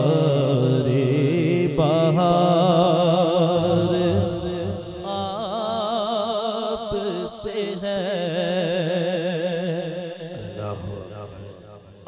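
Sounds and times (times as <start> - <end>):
man singing with vibrato: 0.0 - 12.0.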